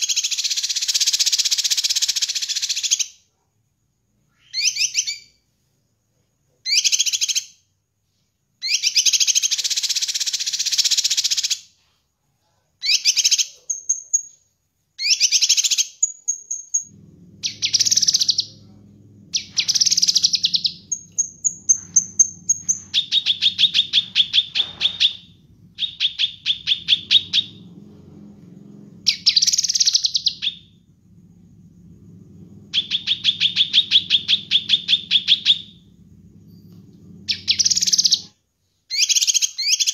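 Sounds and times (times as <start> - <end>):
bird singing varied song: 15.0 - 30.8, 32.6 - 35.8, 36.8 - 38.3
steady low hum: 16.8 - 38.3.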